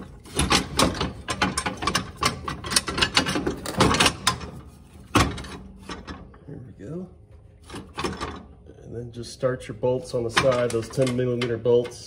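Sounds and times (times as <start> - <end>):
metal bracket rattling and clanking: 0.0 - 6.4, 7.6 - 8.6, 10.2 - 11.8.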